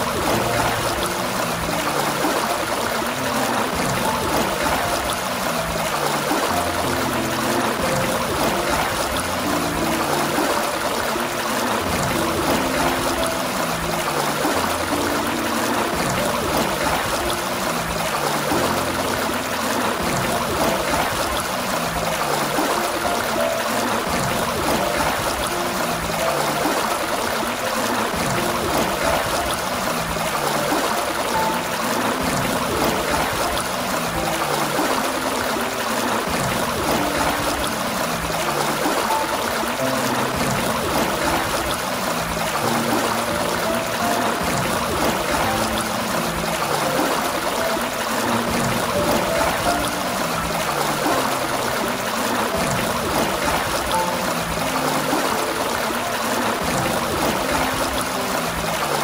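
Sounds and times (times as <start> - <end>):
fountain water gushing: 0.0 - 59.0
slow low music: 0.0 - 59.0.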